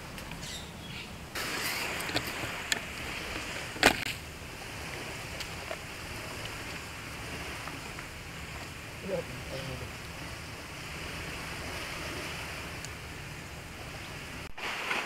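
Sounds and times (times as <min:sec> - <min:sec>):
seaside ambience hiss: 0:00.0 - 0:15.0.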